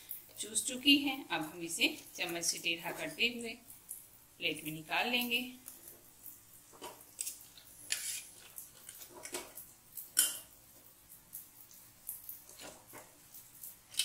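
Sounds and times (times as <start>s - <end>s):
spoon scraping steel pot: 7.9s - 9.5s.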